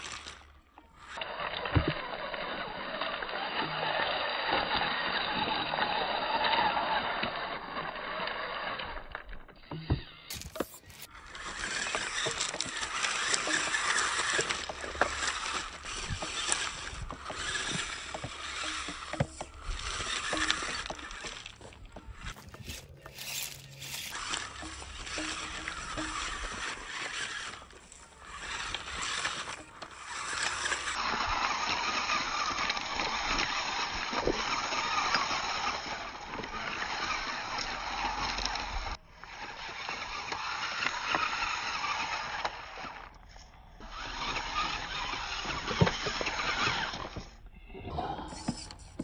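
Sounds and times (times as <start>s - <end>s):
toy car motor running: 0.0s - 47.5s, 48.4s - 49.0s
stones crunching under tyres: 10.3s - 35.6s.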